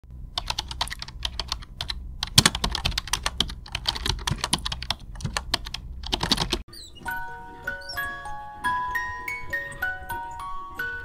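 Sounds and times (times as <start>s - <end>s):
low steady hum: 0.1s - 11.0s
typing on computer keyboard: 0.4s - 6.6s.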